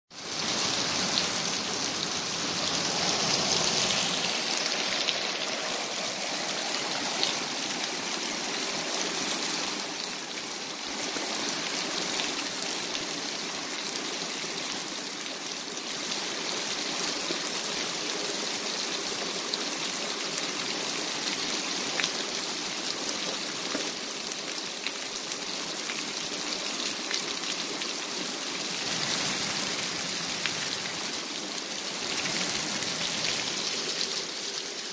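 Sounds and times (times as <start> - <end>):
heavy rain on pavement: 0.1 - 34.9.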